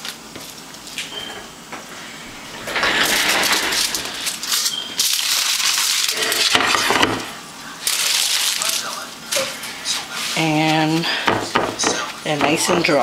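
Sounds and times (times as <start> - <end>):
foil and paper crumpling: 3.8 - 6.9, 7.8 - 11.0.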